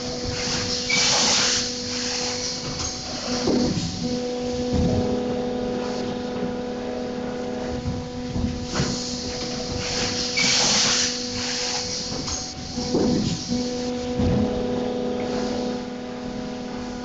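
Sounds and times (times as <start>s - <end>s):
compressed air hiss: 0.0s - 4.2s, 8.6s - 14.1s
steady machine hum: 0.0s - 17.0s.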